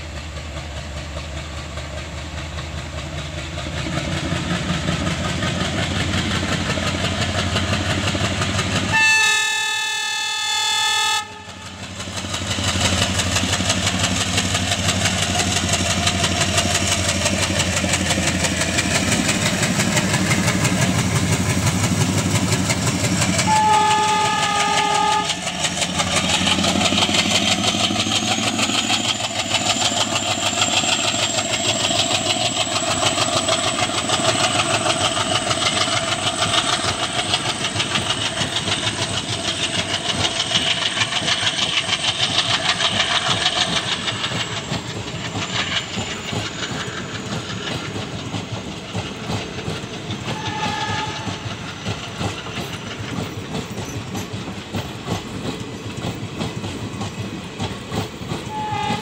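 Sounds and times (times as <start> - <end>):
train wheels clattering: 0.0 - 9.0, 11.4 - 59.0
diesel locomotive engine chugging: 0.0 - 59.0
train horn blast: 8.9 - 11.8, 23.4 - 25.4, 50.4 - 51.4, 58.5 - 59.0.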